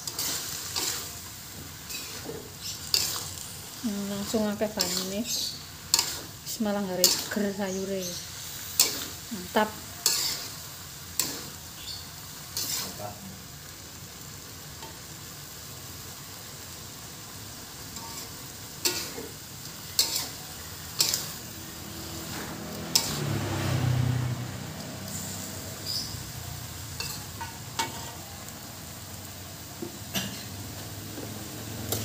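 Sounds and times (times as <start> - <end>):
metal spatula scraping wok: 0.0 - 13.2, 17.8 - 24.2, 24.8 - 28.3
food sizzling in wok: 0.0 - 32.0.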